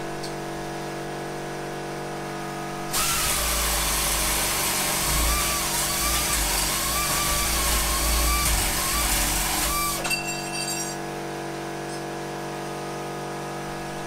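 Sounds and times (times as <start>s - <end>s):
pneumatic nibbler cutting steel: 2.9s - 10.2s.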